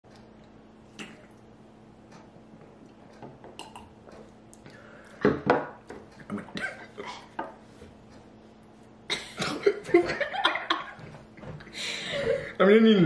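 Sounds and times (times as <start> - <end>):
person coughing: 9.1 - 9.8.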